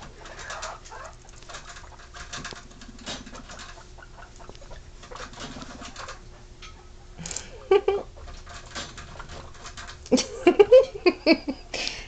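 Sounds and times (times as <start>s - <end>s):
faint clicks and rustles: 0.0s - 6.2s
guinea pigs purring: 0.0s - 10.7s.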